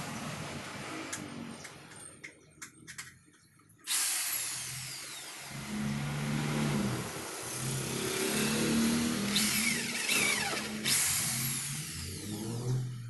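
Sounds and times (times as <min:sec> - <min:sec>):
electric drill boring into wood: 0:03.9 - 0:12.8.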